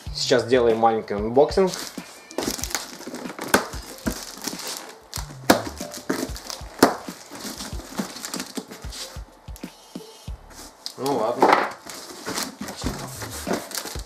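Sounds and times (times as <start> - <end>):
cardboard crackling and crinkling: 1.6 - 9.2, 10.7 - 14.0
packing tape peeling: 1.7 - 9.1, 11.7 - 14.0
cardboard snaps: 1.8 - 8.7.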